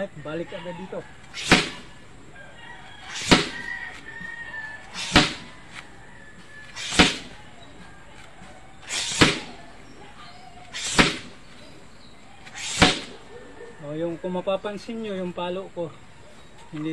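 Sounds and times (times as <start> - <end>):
stick smacking rubber tyre: 1.2 - 2.0, 3.0 - 5.9, 6.6 - 10.0, 10.6 - 11.7, 12.4 - 13.2
stick swishing: 1.2 - 2.0, 3.0 - 4.1, 4.8 - 5.9, 6.6 - 7.9, 8.8 - 10.0, 10.6 - 11.7, 12.4 - 13.3.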